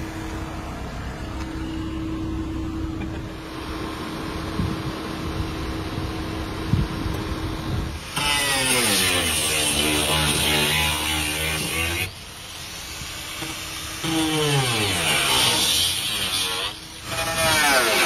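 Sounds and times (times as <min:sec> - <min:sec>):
electric hand tool humming: 0:08.0 - 0:18.0.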